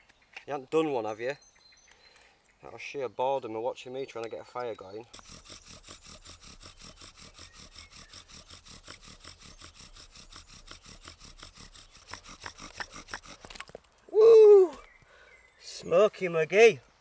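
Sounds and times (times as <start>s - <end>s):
wooden spindle rubbing and squeaking: 5.1s - 13.8s.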